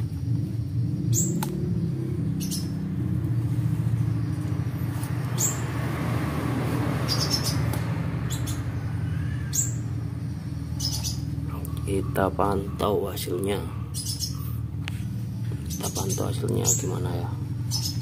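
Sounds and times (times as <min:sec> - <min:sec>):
steady low hum: 0:00.0 - 0:18.0
bird giving rasping calls: 0:07.0 - 0:18.0.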